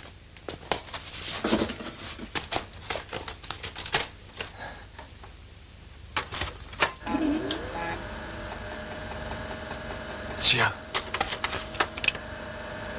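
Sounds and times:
rustling: 0.0s - 4.7s
clicks and knocks of objects handled: 10.2s - 12.2s.

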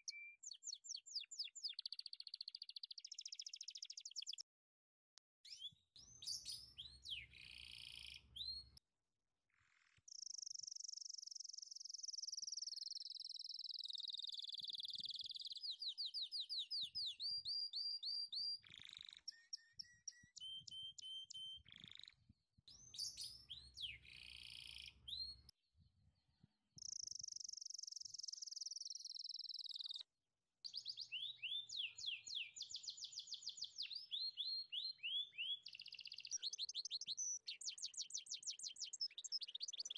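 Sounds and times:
bird whistling and trilling: 0.0s - 1.9s, 5.5s - 8.6s, 14.8s - 22.1s, 22.7s - 25.4s, 30.7s - 39.9s.

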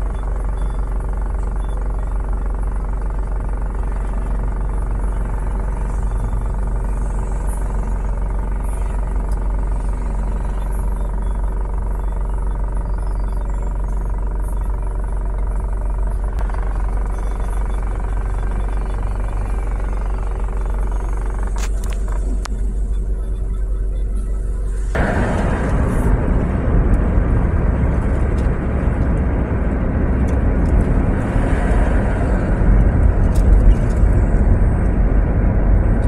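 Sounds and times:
engine idling: 0.0s - 36.0s
faint passing traffic: 23.8s - 36.0s.

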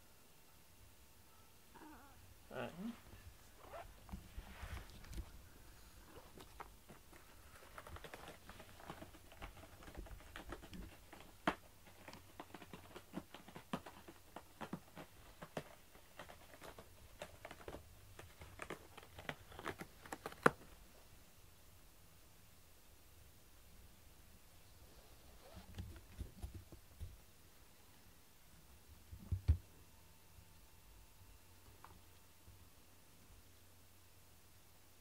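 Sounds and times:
cat scratching in cardboard box: 6.2s - 20.7s.

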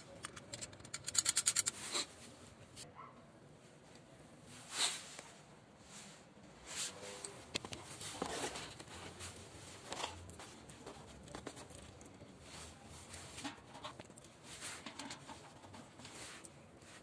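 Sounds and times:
metal bracket clicks: 0.2s - 1.8s
scrapes and rustles: 4.4s - 17.0s.

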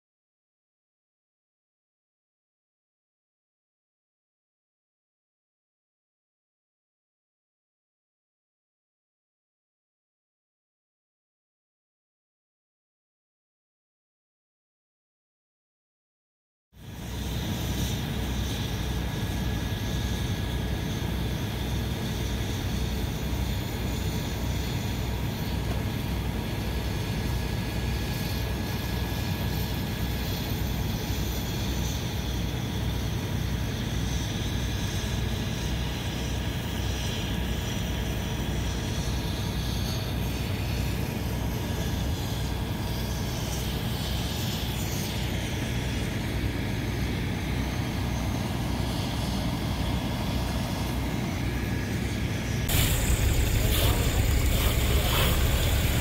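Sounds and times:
diesel engine droning: 52.6s - 56.0s.

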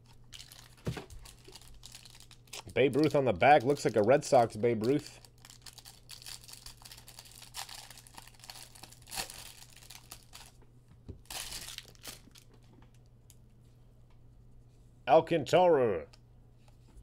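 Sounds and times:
plastic wrapper crinkling: 0.0s - 13.0s.

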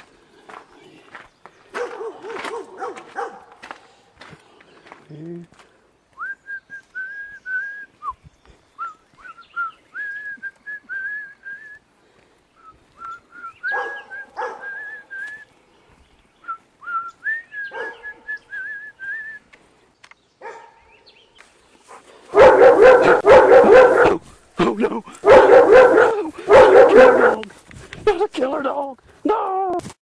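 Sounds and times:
dog barking: 1.7s - 3.6s, 13.7s - 14.8s, 17.7s - 18.2s, 20.4s - 20.9s, 22.3s - 24.2s, 25.2s - 27.5s
person whistling a tune: 6.2s - 8.2s, 8.8s - 11.8s, 12.6s - 15.5s, 16.4s - 19.4s.

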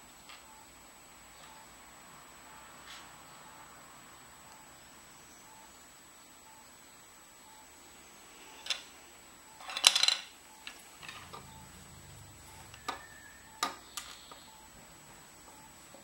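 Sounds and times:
plastic parts clicking and clattering: 9.6s - 11.3s.

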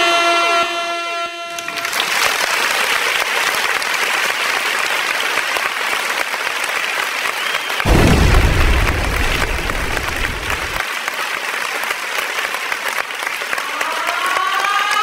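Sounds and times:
audience applauding: 1.6s - 15.0s
deep rumble: 7.9s - 10.8s.

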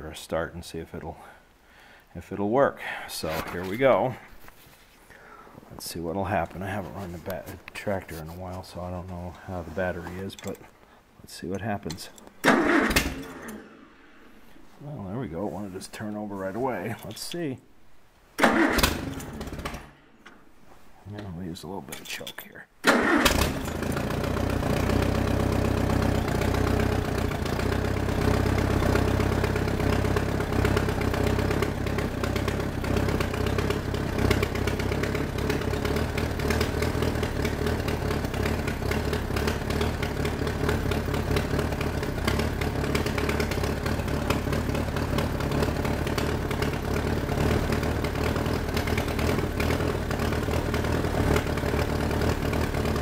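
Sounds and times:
tractor engine idling: 12.4s - 13.6s, 18.4s - 20.0s, 22.9s - 53.0s.

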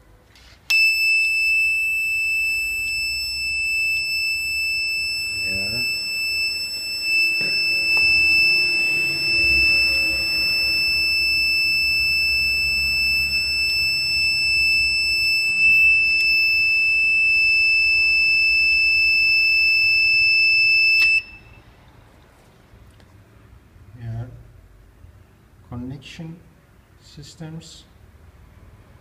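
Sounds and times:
high-pitched buzzer alarm: 0.7s - 21.6s.

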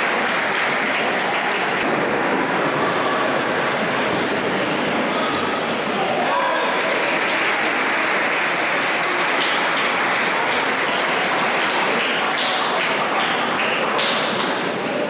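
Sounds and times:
spectators clapping: 0.0s - 1.8s, 6.2s - 15.0s.

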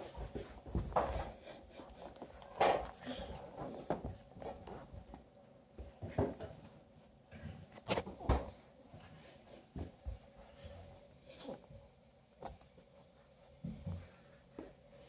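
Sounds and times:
puppies rustling and scuffing: 0.0s - 15.0s.

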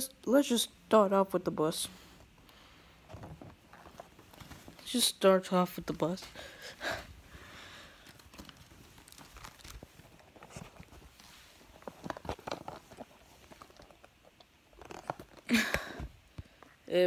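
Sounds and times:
taps clicks and rustles: 8.0s - 16.9s.

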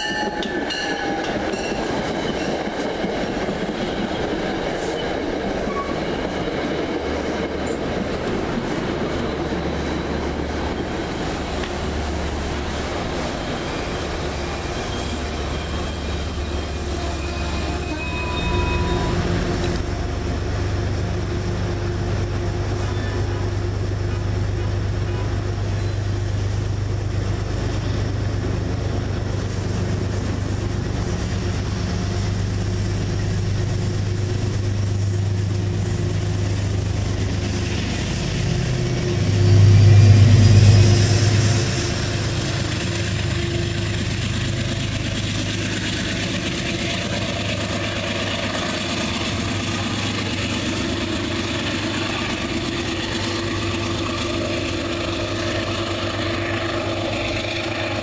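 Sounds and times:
diesel locomotive engine idling: 0.0s - 58.0s
hiss: 25.4s - 26.9s, 28.2s - 38.9s.

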